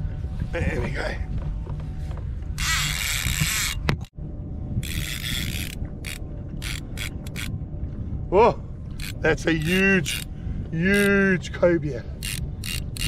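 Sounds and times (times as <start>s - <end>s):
low wind: 0.0s - 13.0s
water rumble: 0.0s - 13.0s
fishing reel drag clicking: 2.6s - 4.1s, 4.8s - 7.5s, 9.0s - 10.3s, 10.9s - 11.1s, 12.2s - 13.0s.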